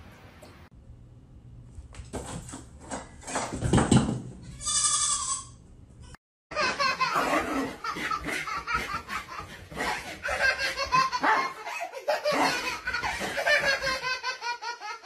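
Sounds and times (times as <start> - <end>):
toddler giggling: 6.6 - 15.0.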